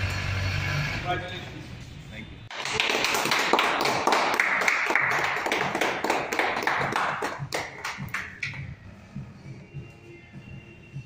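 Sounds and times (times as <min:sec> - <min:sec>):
group clapping: 0:02.5 - 0:08.7
faint background music with beat: 0:06.4 - 0:11.0.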